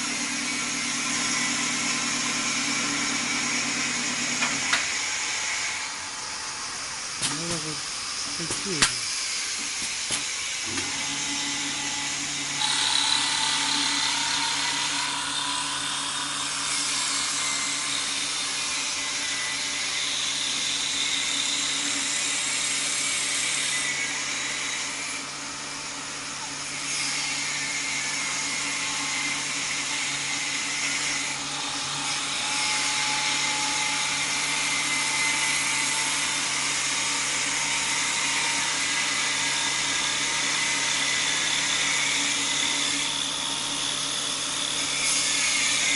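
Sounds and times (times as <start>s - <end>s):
lathe motor hum: 0.0s - 45.9s
high cutting hiss: 7.2s - 10.2s.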